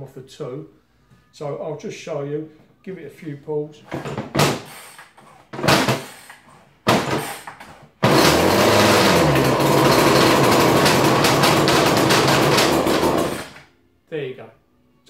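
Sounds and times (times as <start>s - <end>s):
recoil starter pulls: 7.0s - 13.6s
two-stroke engine running: 8.0s - 13.6s.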